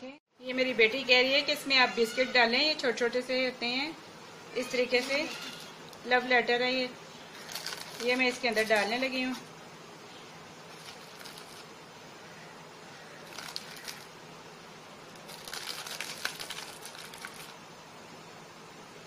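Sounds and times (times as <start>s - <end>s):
biscuits crinkling and rustling: 4.6s - 6.0s, 7.1s - 9.6s, 10.6s - 11.8s, 12.8s - 14.2s, 15.0s - 17.6s.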